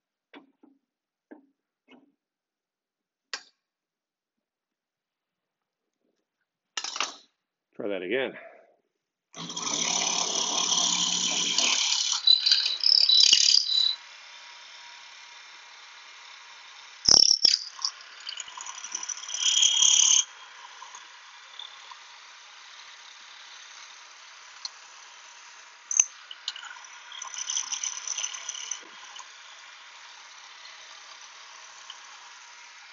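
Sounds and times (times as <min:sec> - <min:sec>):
chisel bit cutting wood: 0:09.4 - 0:32.9
motor high-pitched whine: 0:09.4 - 0:32.9.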